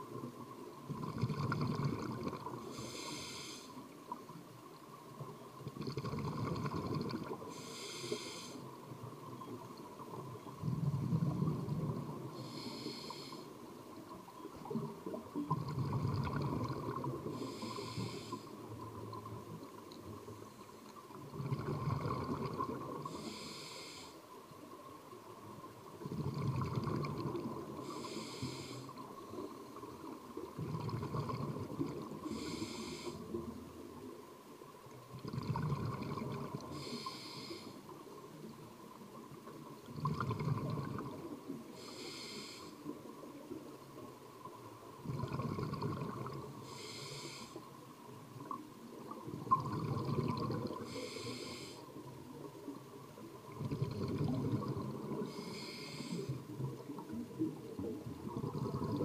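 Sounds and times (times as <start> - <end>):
bubbling exhale underwater: 0.9 - 2.6, 5.7 - 7.4, 14.7 - 17.8, 21.3 - 23.1, 26.0 - 27.7, 30.6 - 33.1, 35.1 - 36.9, 39.9 - 41.2, 45.0 - 46.5, 49.3 - 51.5, 53.5 - 56.1, 58.2 - 59.0
regulator hissing inhale: 2.6 - 4.2, 7.5 - 8.8, 12.4 - 13.6, 17.2 - 18.8, 23.0 - 24.2, 27.7 - 29.0, 32.2 - 33.4, 36.6 - 37.9, 41.7 - 42.9, 46.6 - 47.7, 50.8 - 52.1, 55.1 - 56.6.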